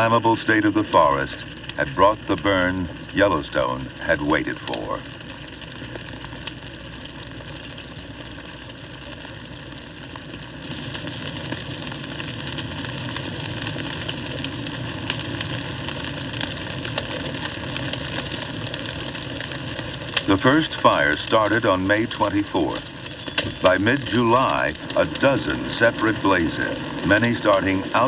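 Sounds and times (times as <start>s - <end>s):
fire crackling: 0.0s - 28.0s
rush of flames: 0.0s - 28.0s.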